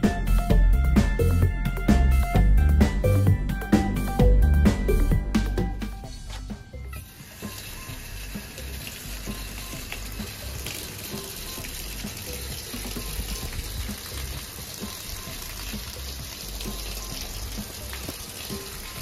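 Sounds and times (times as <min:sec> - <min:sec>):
background music: 0:00.0 - 0:19.0
water spraying and splashing: 0:06.2 - 0:19.0.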